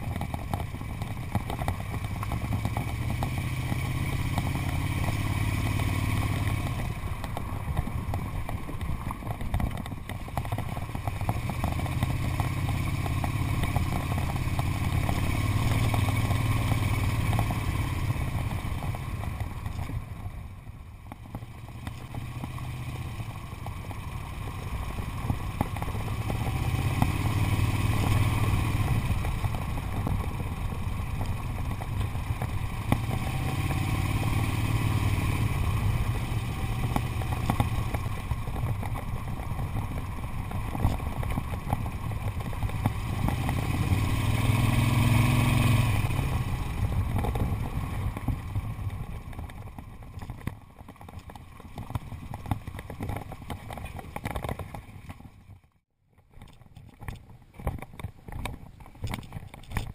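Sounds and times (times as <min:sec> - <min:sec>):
clatter from rough road: 0:00.0 - 0:59.9
motorcycle engine running: 0:00.0 - 0:59.9.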